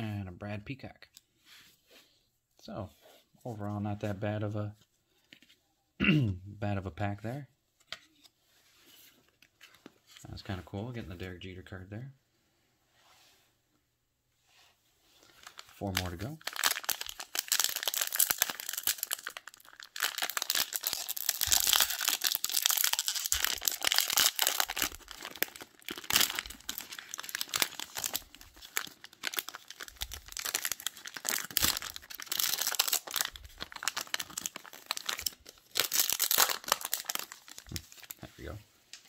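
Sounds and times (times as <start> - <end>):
plastic wrapper tearing and crinkling: 15.4 - 38.2.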